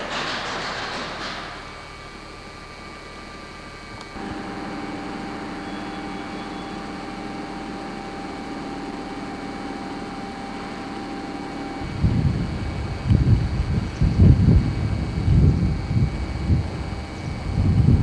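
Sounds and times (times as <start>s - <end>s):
train machine hum: 0.0s - 18.0s
thin high tone: 4.2s - 8.0s
wind buffeting microphone: 11.7s - 18.0s.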